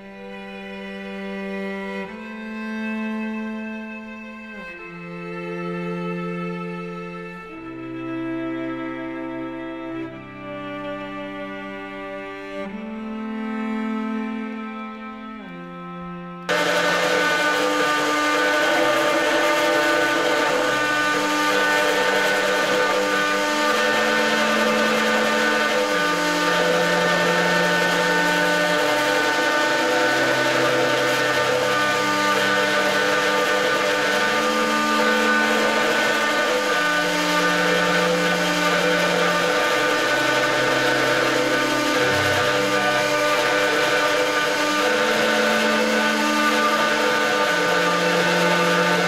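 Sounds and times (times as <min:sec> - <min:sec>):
router spindle whine: 0:00.0 - 0:49.0
low tone shifting in pitch: 0:13.6 - 0:47.8
hiss of cutting: 0:16.5 - 0:49.0.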